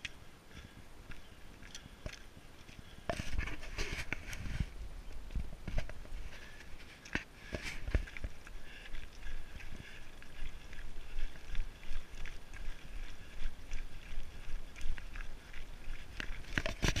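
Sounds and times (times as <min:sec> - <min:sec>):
footsteps crunching on scree: 0:00.0 - 0:17.0
wind buffeting microphone: 0:00.8 - 0:06.3.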